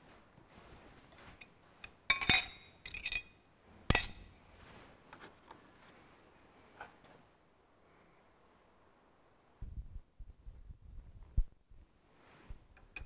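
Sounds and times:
spanners clinking on metal: 1.8s - 4.3s.

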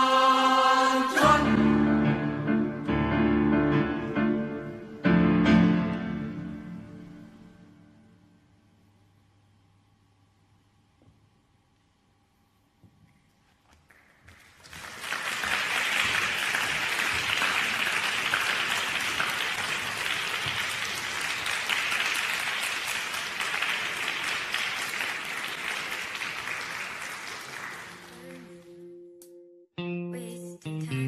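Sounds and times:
audience applauding: 13.8s - 28.7s.

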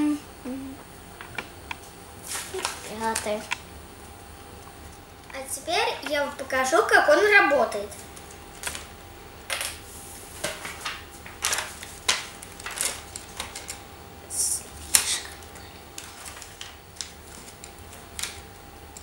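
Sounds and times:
paper sheet rustling: 2.2s - 3.4s, 9.8s - 13.6s, 16.0s - 18.1s.

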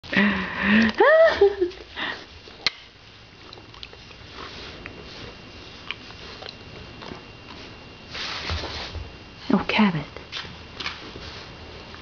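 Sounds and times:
soft rustling: 4.2s - 9.5s.

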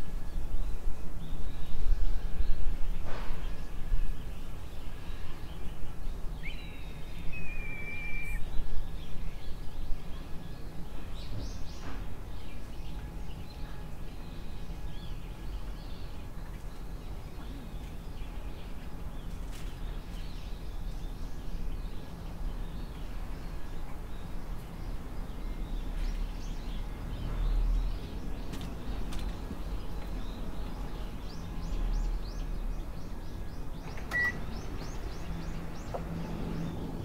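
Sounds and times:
birds calling: 6.2s - 8.5s
whistled bird call: 6.4s - 8.5s.

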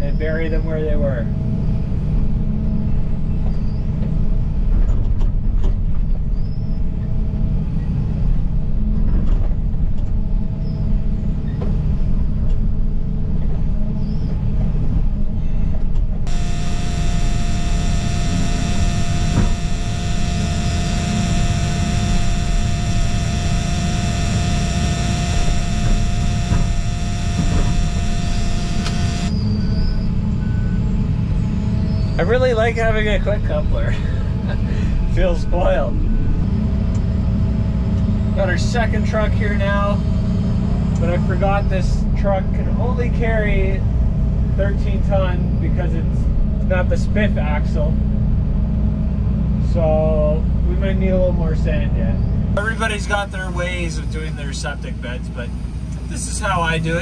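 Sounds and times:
high whine: 16.3s - 30.3s, 52.6s - 57.0s.

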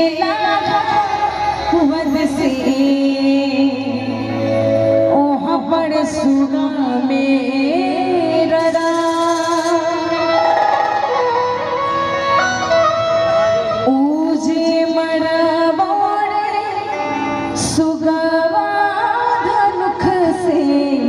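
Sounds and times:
woman singing devotional song: 0.0s - 10.4s, 13.8s - 21.0s
instrumental accompaniment: 7.7s - 20.1s.

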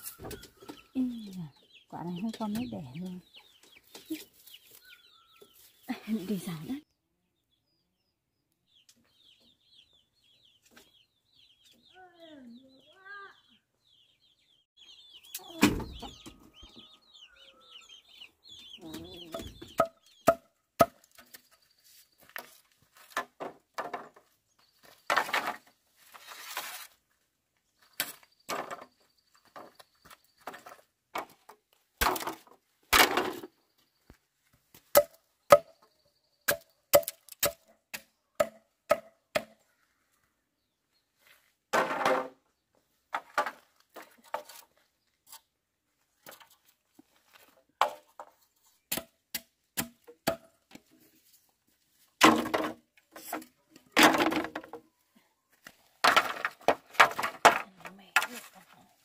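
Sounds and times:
bamboo poles clattering: 18.8s - 27.1s, 27.8s - 33.6s, 34.6s - 35.8s, 41.7s - 59.0s
machete chopping bamboo: 19.8s - 21.4s, 34.9s - 35.7s, 36.5s - 39.6s, 48.9s - 50.5s.

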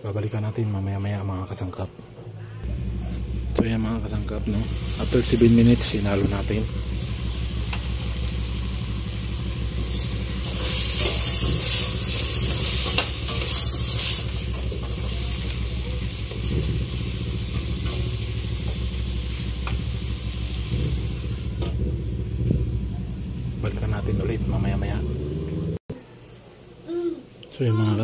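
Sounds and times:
steady low hum: 2.3s - 25.8s
chicken sizzling in a pan: 4.3s - 21.6s.

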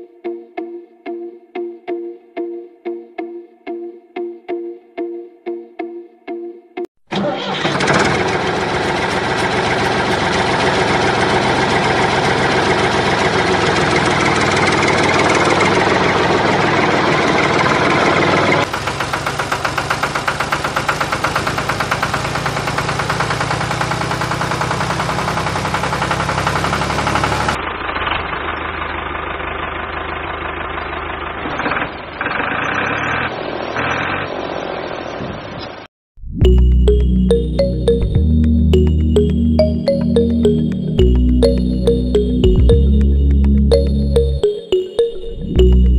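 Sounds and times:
tractor engine knocking: 7.2s - 32.5s.

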